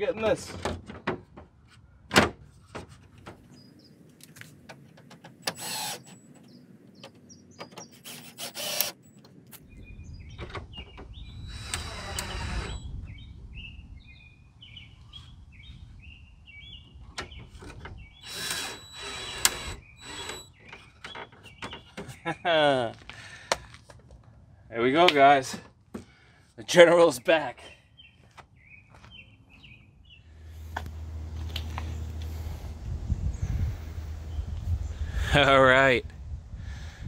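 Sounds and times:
cordless drill driving screws: 0:05.5 - 0:06.2, 0:07.9 - 0:09.0, 0:11.2 - 0:12.9, 0:18.2 - 0:20.6
birds chirping faintly: 0:26.1 - 0:36.0.

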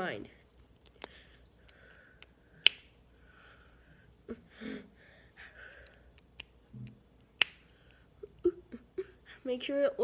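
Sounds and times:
soft nasal breathing: 0:01.0 - 0:06.2.

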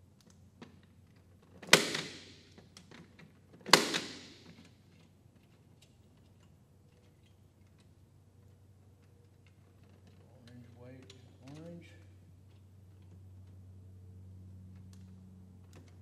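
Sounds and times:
punch-down tool snapping: 0:03.7 - 0:04.6
light clicks of wire handling: 0:04.4 - 0:13.6.

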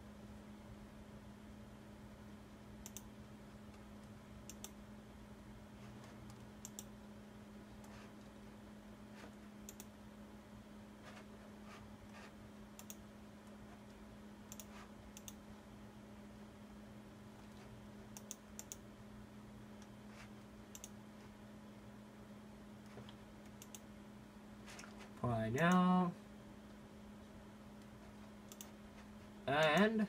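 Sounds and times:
steady low hum: 0:00.0 - 0:30.0
mouse and keyboard clicks: 0:06.3 - 0:06.9, 0:12.8 - 0:13.0, 0:14.5 - 0:15.4, 0:20.7 - 0:21.0, 0:28.5 - 0:28.8.

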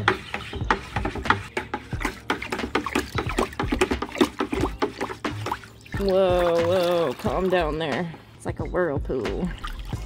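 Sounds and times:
stick stirring bucket of water: 0:00.0 - 0:10.0
sloshing splashes and clicks: 0:00.1 - 0:08.0.

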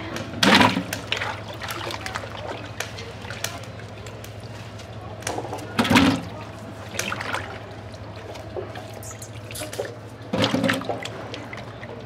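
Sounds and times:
water splashing in a metal saucepan: 0:00.2 - 0:04.6, 0:05.2 - 0:12.0.

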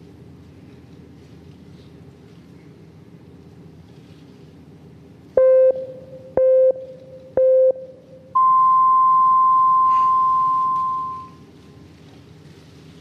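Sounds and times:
long high beep: 0:05.4 - 0:11.4
short beeps: 0:05.4 - 0:11.4.

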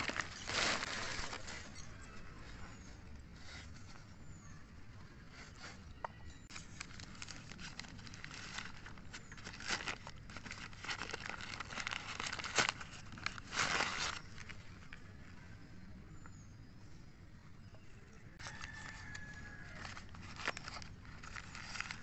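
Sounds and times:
newspaper crinkling and rustling: 0:00.0 - 0:02.6, 0:06.5 - 0:15.1, 0:18.4 - 0:22.0.

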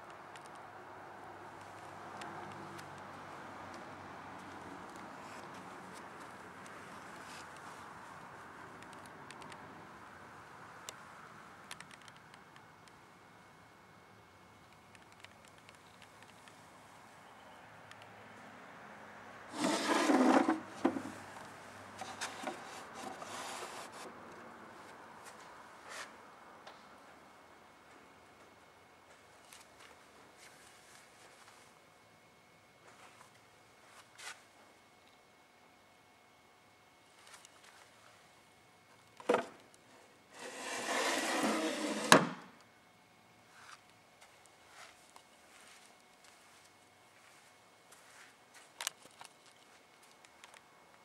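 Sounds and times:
small clicks: 0:11.7 - 0:13.0, 0:14.7 - 0:16.6
wood scraping: 0:19.5 - 0:21.2, 0:22.0 - 0:24.1, 0:40.4 - 0:42.4
wooden drawer sliding open: 0:19.6 - 0:21.1, 0:40.4 - 0:42.5.

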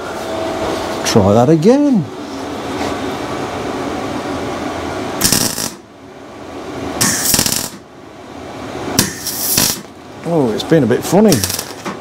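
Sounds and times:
welder crackling bursts: 0:05.2 - 0:05.9, 0:07.0 - 0:07.8, 0:09.0 - 0:09.9, 0:11.2 - 0:11.9.

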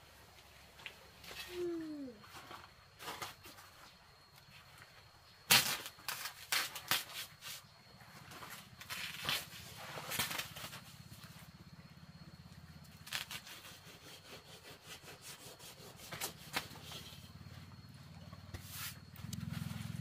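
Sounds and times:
shovel scraping dry earth: 0:08.3 - 0:10.9, 0:13.0 - 0:17.3, 0:18.5 - 0:20.0.

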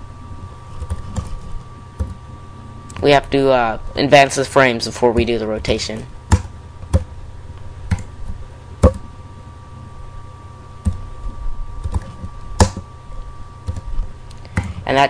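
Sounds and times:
low steady hum: 0:00.0 - 0:15.0
keyboard keystrokes and mouse clicks: 0:11.8 - 0:12.8, 0:13.6 - 0:14.8.

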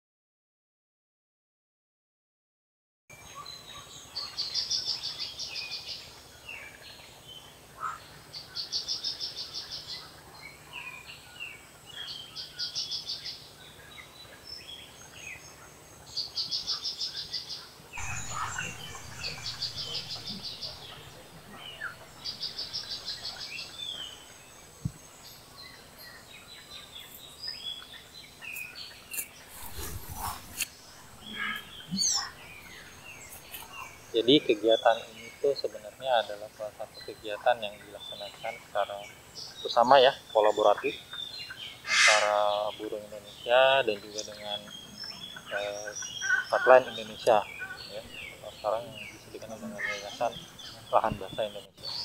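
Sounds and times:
bird fast-pulsed trill: 0:18.0 - 0:24.3
short bird chirps: 0:18.0 - 0:24.4, 0:25.2 - 0:34.2, 0:41.8 - 0:42.7.

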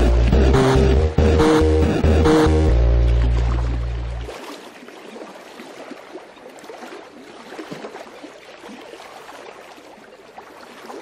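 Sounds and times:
water lapping and trickling: 0:02.8 - 0:11.0.

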